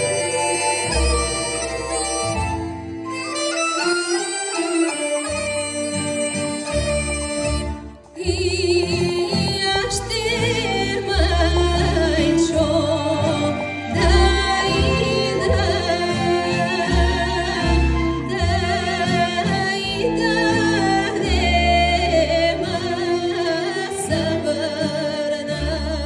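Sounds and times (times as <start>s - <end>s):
woman singing folk song: 0.0s - 2.9s, 4.0s - 26.0s
folk orchestra playing: 0.0s - 26.0s.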